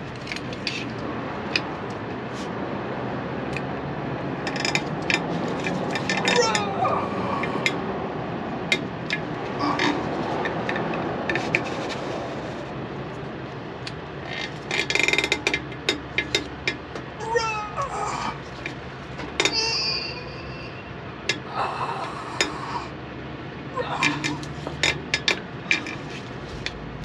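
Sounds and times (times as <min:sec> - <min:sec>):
sliding pitch squeaks: 0:19.4 - 0:21.1
high squeal: 0:19.4 - 0:21.2.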